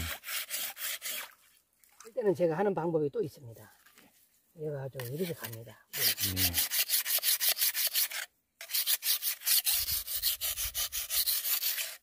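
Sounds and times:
blade scraping on whetstone: 0:06.0 - 0:12.0.

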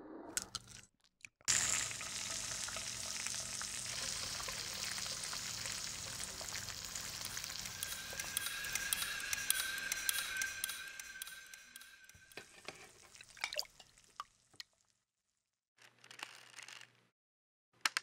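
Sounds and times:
food sizzling in a skillet: 0:01.5 - 0:13.2
thin high tone: 0:04.3 - 0:13.1.

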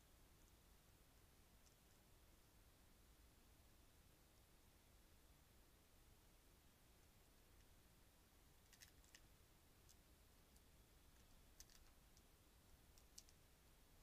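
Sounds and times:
raccoon eating seed: 0:08.6 - 0:09.3, 0:11.2 - 0:12.0.

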